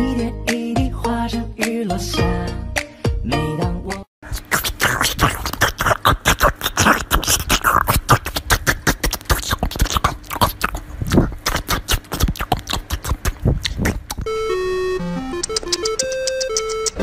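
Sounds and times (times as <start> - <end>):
puppy chewing watermelon: 4.3 - 14.3, 15.4 - 17.0
keyboard music: 14.2 - 17.0.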